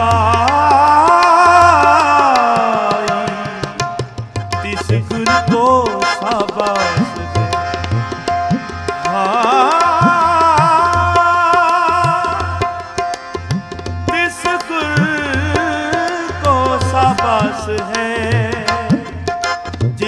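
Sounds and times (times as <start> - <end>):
man singing: 0.0 - 13.2, 14.1 - 20.0
harmonium notes: 0.0 - 20.0
tabla drum strokes: 0.2 - 11.1.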